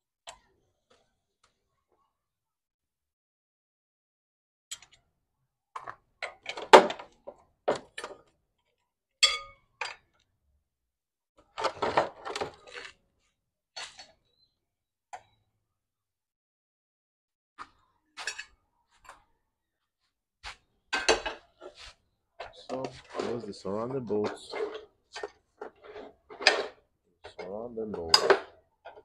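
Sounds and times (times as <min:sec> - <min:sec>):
metal tools clinking and knocking: 0:22.4 - 0:29.0.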